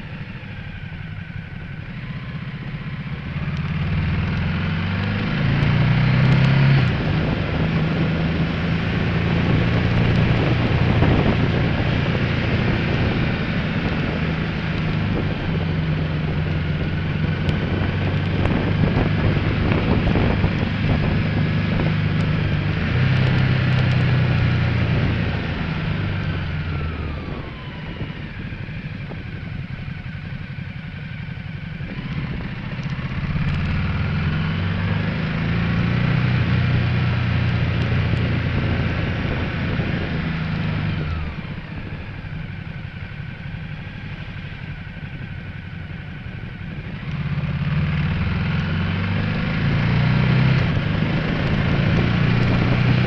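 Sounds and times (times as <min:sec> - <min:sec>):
motorcycle engine running: 0:00.0 - 0:53.0.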